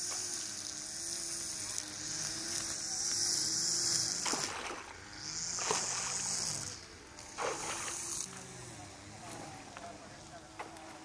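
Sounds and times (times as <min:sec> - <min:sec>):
water splashing: 0:04.2 - 0:08.4.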